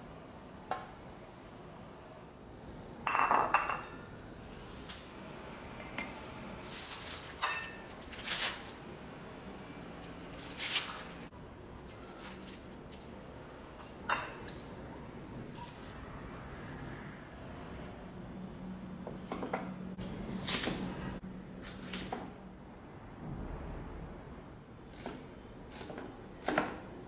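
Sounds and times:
vegetable stalks rustling and crunching: 6.7 - 7.4, 8.0 - 8.8, 10.3 - 11.3.

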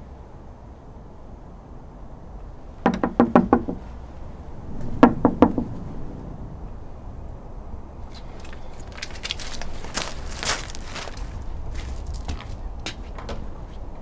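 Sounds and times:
knuckles knocking on a door: 2.8 - 3.8, 5.0 - 5.7.

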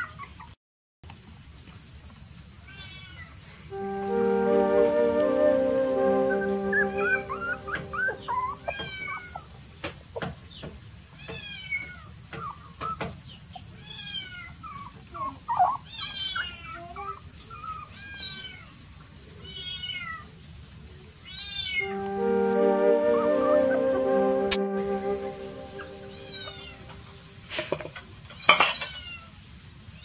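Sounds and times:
steady high hiss: 3.7 - 8.9, 21.8 - 27.4.

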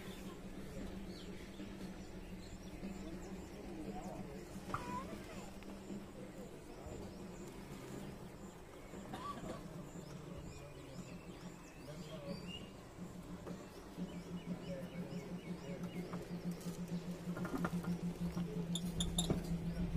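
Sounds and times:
birds chirping: 0.0 - 19.9
diesel engine running: 12.4 - 19.9.

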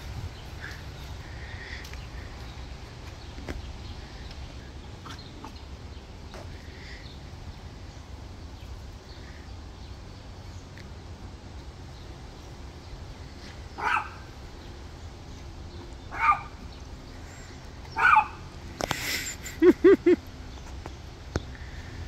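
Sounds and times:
small dog barking: 13.8 - 14.3, 16.1 - 16.6, 18.0 - 18.4.

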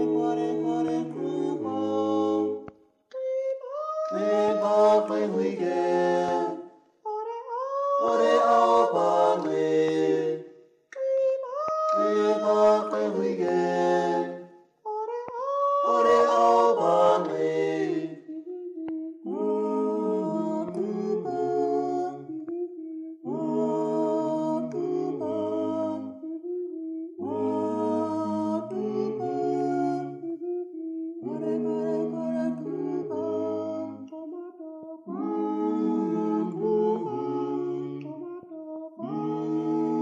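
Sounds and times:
voices singing in harmony: 0.0 - 40.0.

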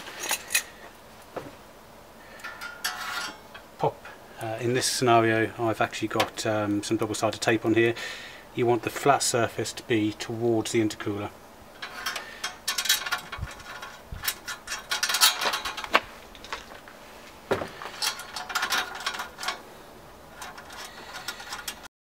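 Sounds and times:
screwdriver clicking on metal screws: 20.4 - 21.9.

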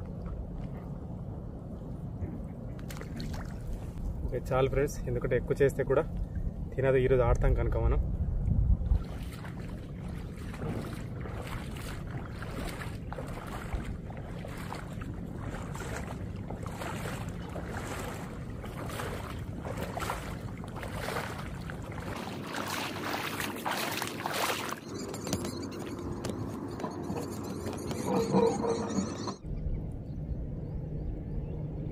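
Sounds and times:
wind rumbling on microphone: 0.0 - 28.8, 29.4 - 31.9
footsteps wading through water: 2.8 - 4.0, 8.8 - 27.5.

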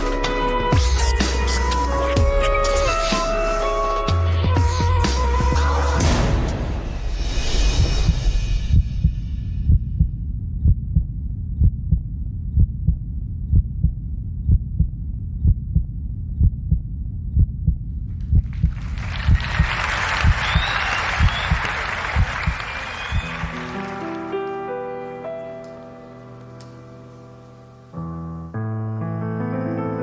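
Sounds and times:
deep electronic heartbeat pulse: 7.9 - 23.3
audience applauding and cheering: 18.5 - 24.6.

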